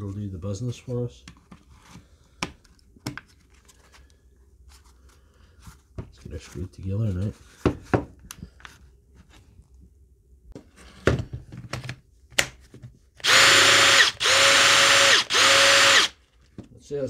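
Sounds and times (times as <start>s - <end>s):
cordless drill motor whine: 13.2s - 16.2s.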